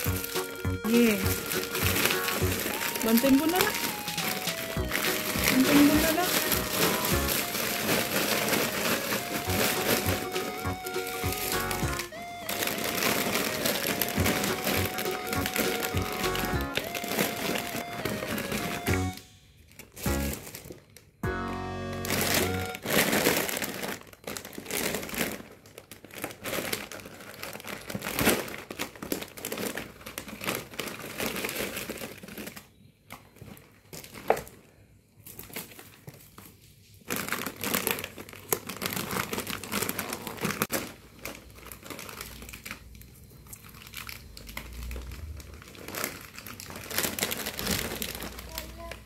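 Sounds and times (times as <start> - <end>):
plastic packets crinkling: 0.0 - 21.2, 21.9 - 49.0.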